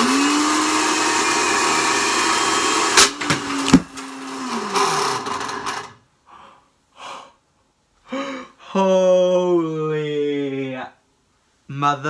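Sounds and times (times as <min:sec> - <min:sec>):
blender motor running: 0:00.0 - 0:05.9
people gasping: 0:08.1 - 0:08.7.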